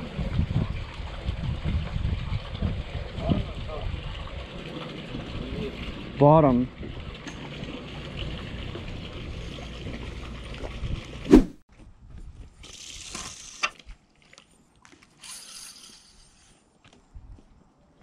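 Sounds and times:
wind noise: 0.0s - 4.6s
short hissing swishes: 11.3s - 11.6s.

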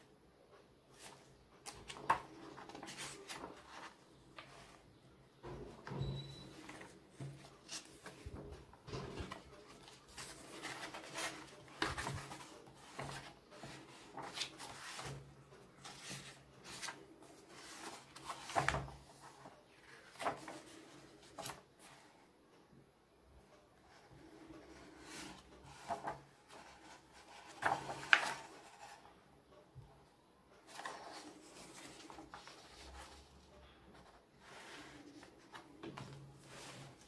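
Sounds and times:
comic book pages turning: 1.0s - 4.8s, 6.6s - 22.0s, 24.7s - 29.0s, 30.6s - 33.4s, 34.0s - 37.0s.

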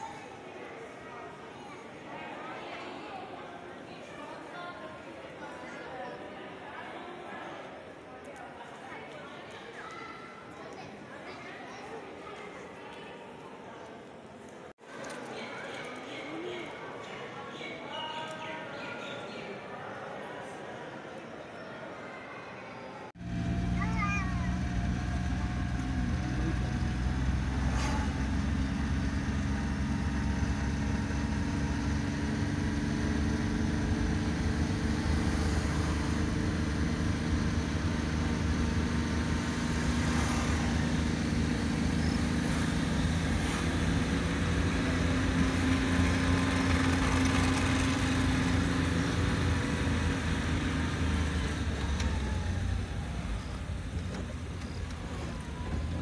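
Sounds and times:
tyre and road noise: 23.2s - 56.0s
vehicle engine droning: 23.2s - 56.0s.

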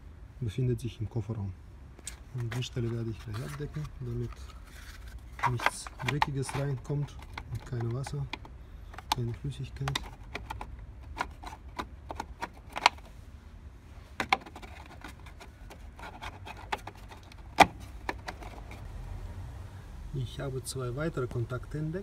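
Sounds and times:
light clicks and knocks: 5.4s - 13.0s.

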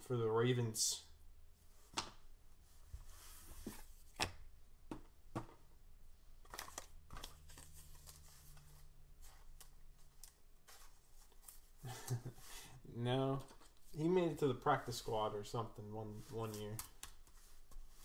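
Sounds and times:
cards clicking and rustling: 6.4s - 12.2s.

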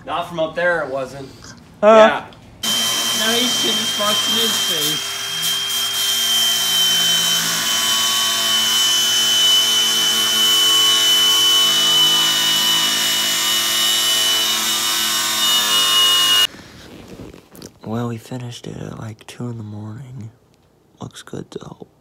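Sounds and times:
angle grinder cutting metal: 2.6s - 16.5s.

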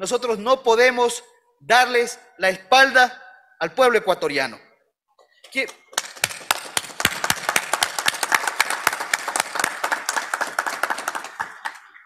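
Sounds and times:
crowd clapping: 5.6s - 12.0s.

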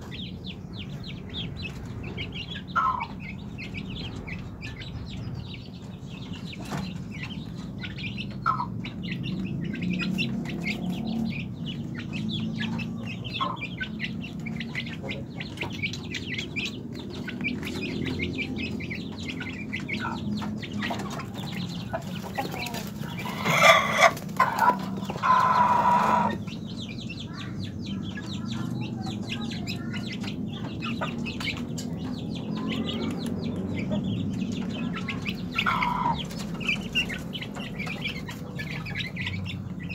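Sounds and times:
chicks peeping and clucking: 0.0s - 39.9s
harsh chicken squawking: 2.6s - 3.4s, 7.8s - 8.8s, 12.6s - 26.6s, 34.7s - 39.9s.

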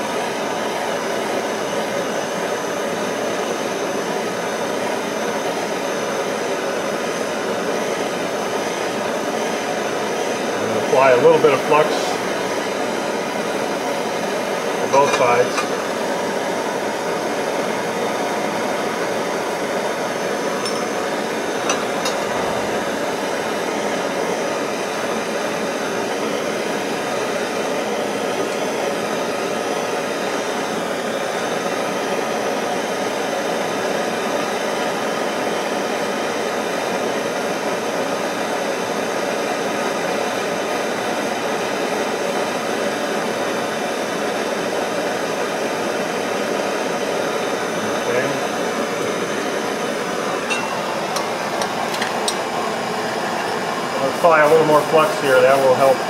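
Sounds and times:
gas torch hissing: 0.0s - 56.0s.

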